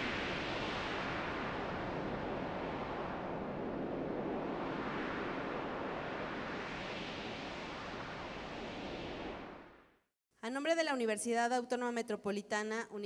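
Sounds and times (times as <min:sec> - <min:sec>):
rushing wind-like whoosh: 0:00.0 - 0:09.9.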